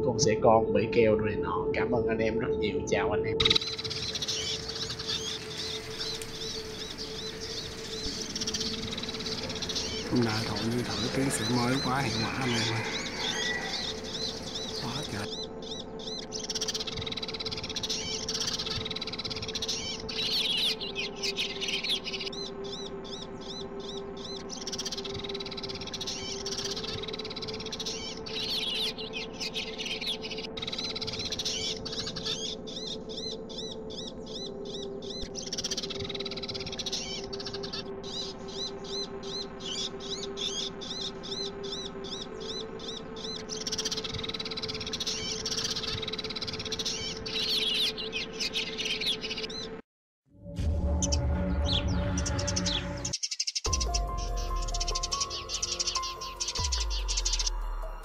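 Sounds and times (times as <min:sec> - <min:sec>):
recorded sparrow chirps: 0:00.0 - 0:49.8, 0:50.9 - 0:58.0.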